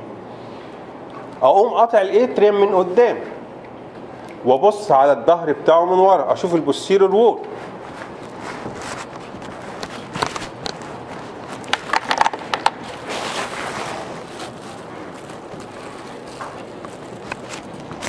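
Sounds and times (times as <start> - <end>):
room noise: 0.0 - 18.0
footsteps: 7.4 - 18.0
objects knocking and clicking: 11.5 - 12.9
short rustle: 12.8 - 18.0.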